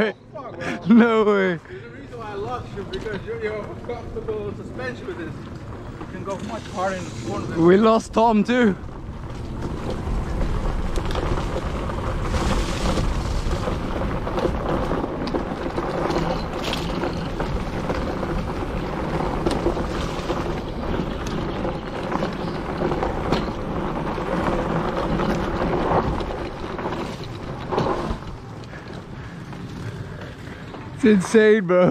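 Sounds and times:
tyres rumbling on dirt: 0.0s - 31.9s
bike knocks and rattles: 2.4s - 31.6s
wind noise on microphone: 5.2s - 29.3s.

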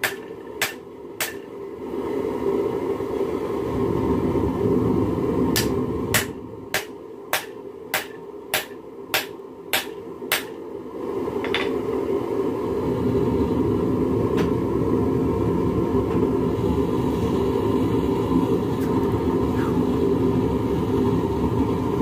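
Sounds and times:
hammer striking metal on anvil: 0.0s - 1.5s, 5.6s - 10.6s.

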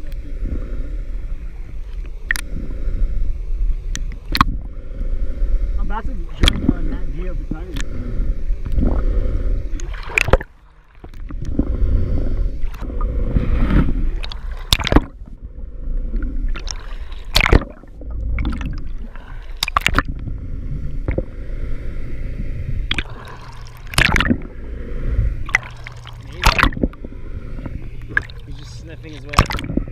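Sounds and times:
muffled underwater rumble: 0.0s - 29.9s
sharp knocks or splashes: 6.4s - 6.7s, 9.8s - 11.3s, 14.2s - 15.1s, 16.6s - 17.8s, 19.6s - 20.1s, 23.8s - 24.4s, 25.5s - 26.9s, 29.3s - 29.9s.

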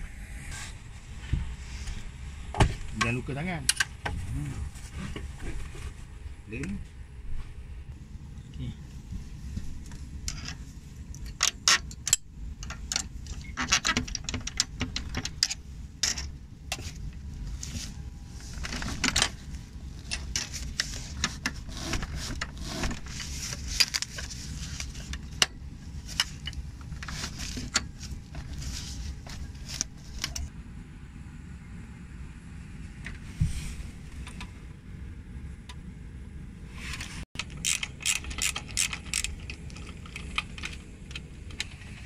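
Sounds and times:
steady low hum: 0.0s - 42.0s
cloth rustling: 25.8s - 30.5s.

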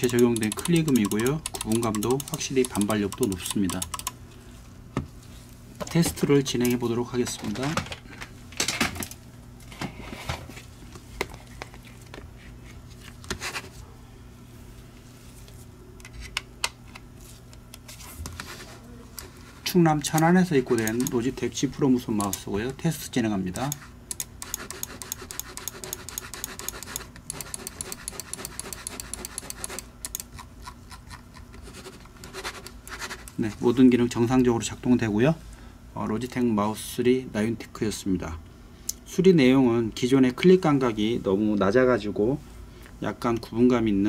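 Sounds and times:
light tapping sounds: 0.0s - 4.2s
rapid mouse clicks: 0.0s - 4.2s, 20.1s - 21.3s, 23.5s - 33.4s.

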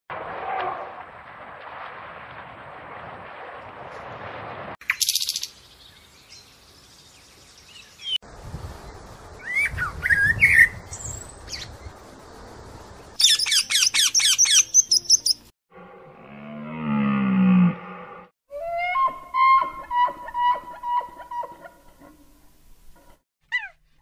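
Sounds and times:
bird calls: 13.2s - 15.4s.

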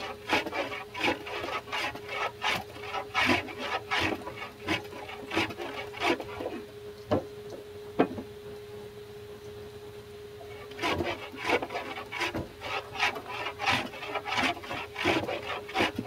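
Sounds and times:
short rasping strokes: 0.0s - 6.6s, 10.5s - 16.0s.

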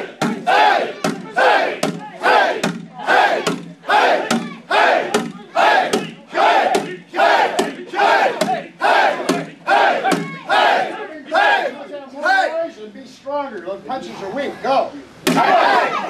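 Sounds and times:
group shouting in unison: 0.0s - 11.8s, 15.3s - 16.0s
sharp knock: 1.0s - 4.5s, 5.1s - 6.1s.

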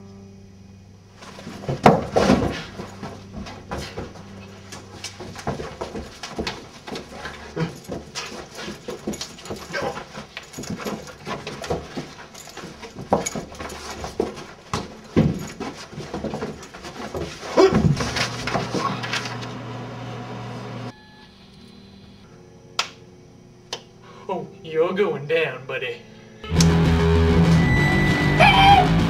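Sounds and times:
faint steady hum: 0.0s - 16.0s, 17.9s - 28.3s
bodies and feet scuffling: 1.2s - 19.4s
men grunting and yelping: 7.1s - 8.4s, 9.5s - 10.2s, 28.3s - 29.0s
loud drawn-out cry: 28.0s - 29.0s.

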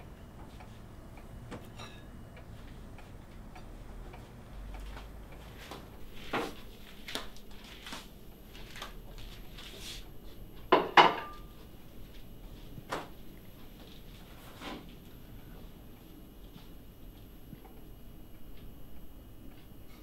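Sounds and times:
dishes clinking: 1.7s - 2.1s, 10.7s - 11.4s.

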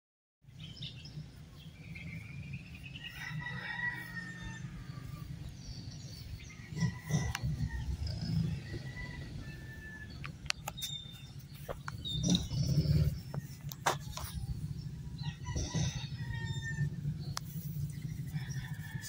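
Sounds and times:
birds calling: 0.5s - 19.0s
steady low rumble: 0.8s - 19.0s
rooster crowing: 3.0s - 5.4s, 6.8s - 10.2s, 15.1s - 17.2s, 18.2s - 19.0s.

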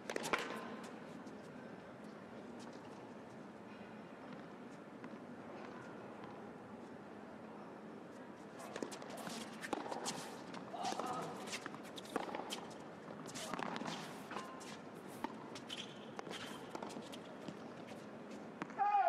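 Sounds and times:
sneakers squeaking on court: 8.6s - 17.6s.

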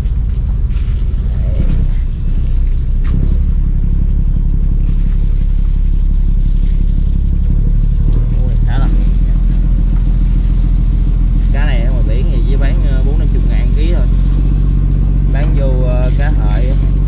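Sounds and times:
diesel engine low rumble: 0.0s - 17.0s.

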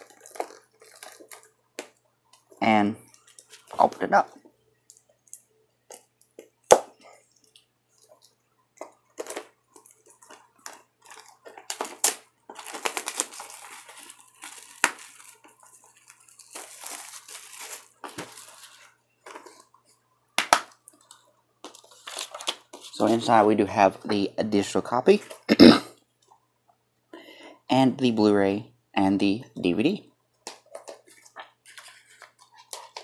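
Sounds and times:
shrink-wrap crinkling: 0.0s - 4.2s, 7.4s - 20.0s, 20.8s - 23.4s.

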